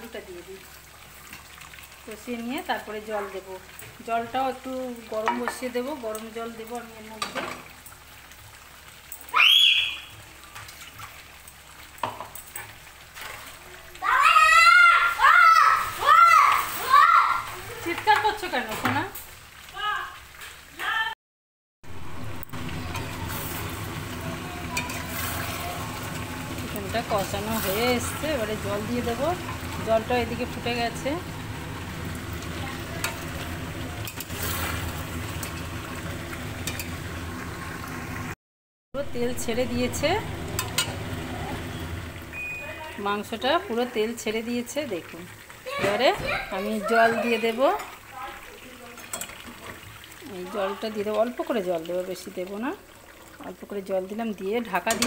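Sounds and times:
meat frying in oil: 0.0 - 21.1, 21.8 - 38.4, 39.0 - 55.0
spatula scraping frying pan: 24.7 - 30.1.

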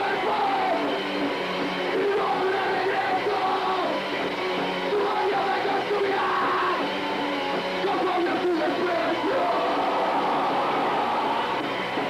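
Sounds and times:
singer shouting into microphone: 0.0 - 0.9, 1.9 - 4.0, 4.9 - 6.9, 7.8 - 11.4
punk band playing live: 0.0 - 12.0.

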